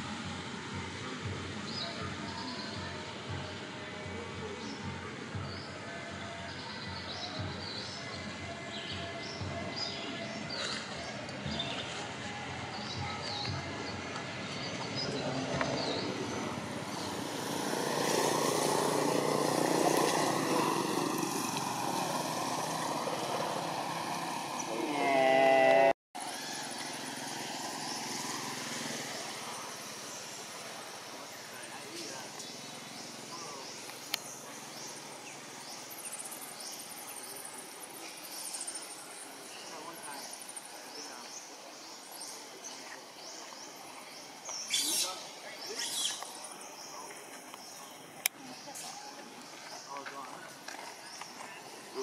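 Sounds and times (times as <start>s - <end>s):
vehicle engine passing: 14.4s - 52.0s.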